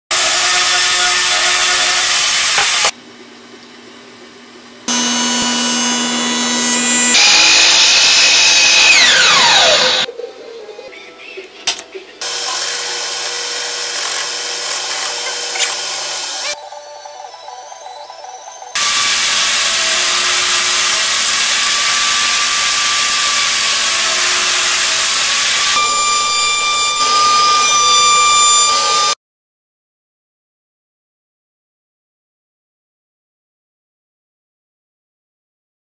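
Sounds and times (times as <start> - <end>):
table saw cutting wood: 0.1 - 3.0, 4.9 - 10.1, 12.2 - 16.6, 18.8 - 29.2
motor winding down with whine: 4.9 - 10.1, 12.2 - 16.6, 18.8 - 29.2.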